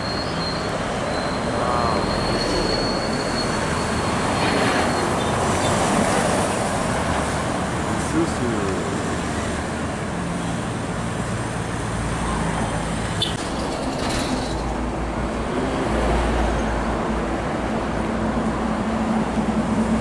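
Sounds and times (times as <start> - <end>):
diesel trucks droning past: 0.0 - 9.8
highway traffic noise: 0.0 - 20.0.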